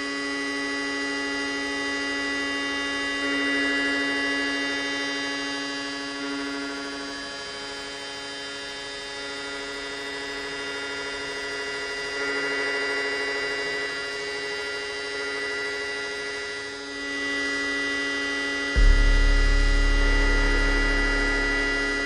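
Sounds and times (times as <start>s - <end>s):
electronic buzzing drone: 11.8s - 22.0s.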